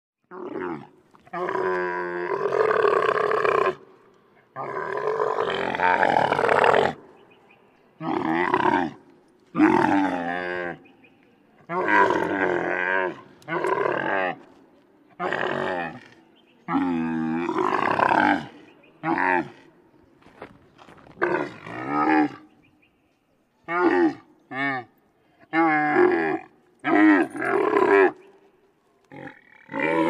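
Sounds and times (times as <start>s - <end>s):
camel grunting: 0.3s - 7.2s.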